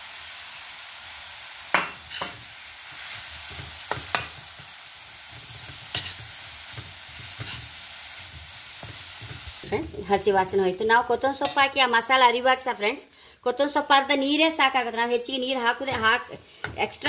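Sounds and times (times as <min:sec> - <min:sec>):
vegetables sizzling in a wok: 0:00.0 - 0:17.0
spatula scraping and clinking pan: 0:02.0 - 0:02.4, 0:05.3 - 0:07.8.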